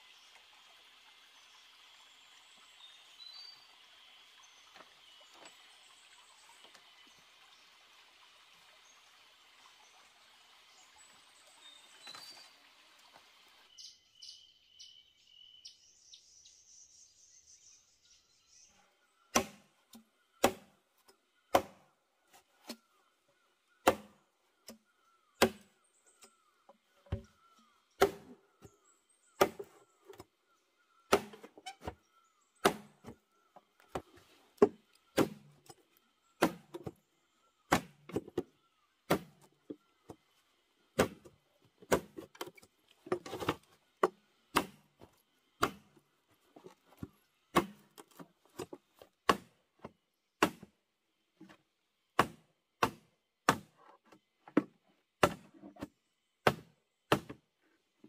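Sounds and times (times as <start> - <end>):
machete striking bamboo: 19.3 - 20.7, 21.5 - 21.8, 23.8 - 24.2, 25.4 - 25.7, 28.0 - 28.4, 29.4 - 29.7, 31.1 - 31.5, 32.6 - 33.1, 34.6 - 35.5, 36.4 - 36.9, 37.7 - 38.2, 39.1 - 39.4, 41.0 - 41.3, 41.9 - 42.2, 44.5 - 45.0, 45.6 - 45.9, 47.5 - 48.0, 49.2 - 49.6, 50.4 - 50.7, 52.2 - 53.7, 55.2 - 55.4, 56.4 - 57.4.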